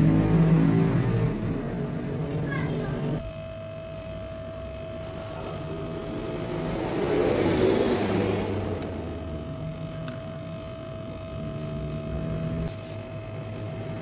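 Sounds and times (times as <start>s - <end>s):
vehicle passing: 0.0s - 3.2s, 5.2s - 9.8s.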